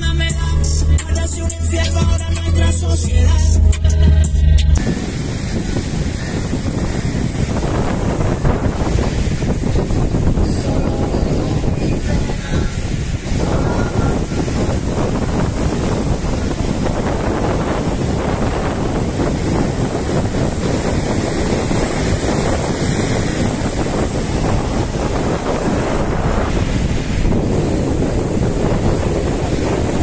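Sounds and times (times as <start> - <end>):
ocean surf breaking: 4.8 - 30.0
wind buffeting microphone: 4.8 - 30.0.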